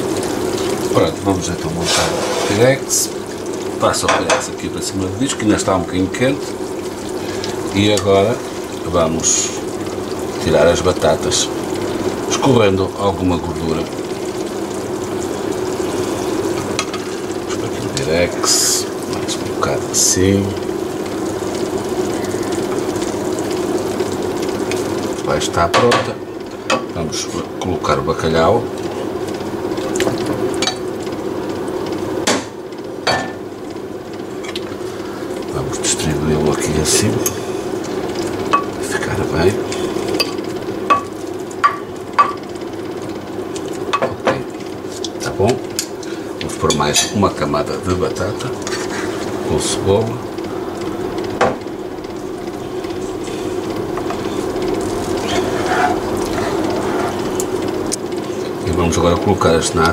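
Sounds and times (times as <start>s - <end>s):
steady hum: 0.0s - 59.9s.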